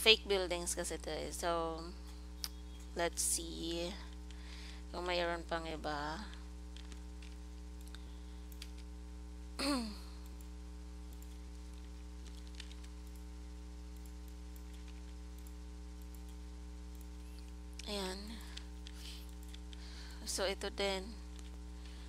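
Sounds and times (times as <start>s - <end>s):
electrical mains hum: 0.0s - 22.0s
computer mouse clicks: 6.3s - 8.9s, 11.1s - 13.3s, 13.9s - 19.8s
person humming hmm: 9.6s - 10.2s.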